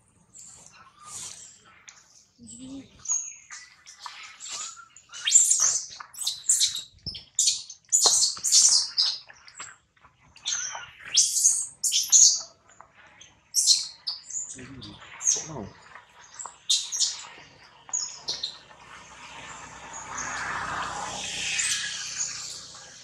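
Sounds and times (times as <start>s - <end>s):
high-pitched animal chirps and squeaks: 0.4s - 9.7s, 10.4s - 12.5s, 13.6s - 15.7s, 16.4s - 17.3s.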